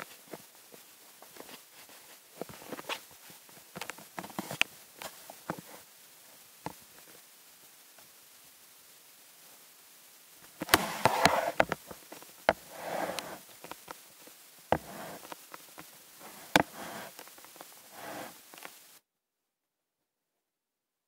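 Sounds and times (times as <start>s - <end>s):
rustling and scuffing: 10.5s - 18.8s.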